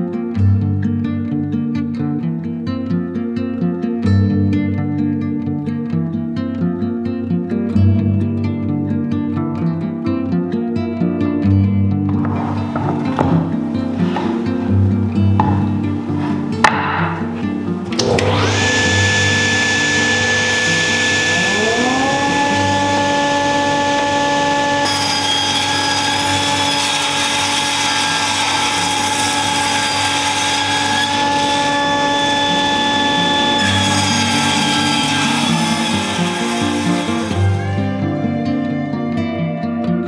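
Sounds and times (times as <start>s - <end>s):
background music: 0.0s - 40.0s
table saw whining: 17.9s - 38.9s
saw blade cutting board: 18.0s - 37.8s.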